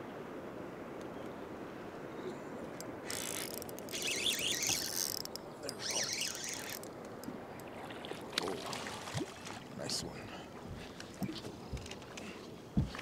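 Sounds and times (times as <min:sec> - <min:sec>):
water noise: 0:00.0 - 0:13.0
wind: 0:00.0 - 0:13.0
spinning reel winding: 0:03.1 - 0:06.9.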